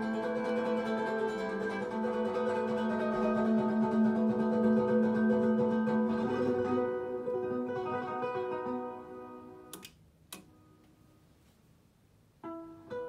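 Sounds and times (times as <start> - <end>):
input selector clicks: 9.7 - 10.5.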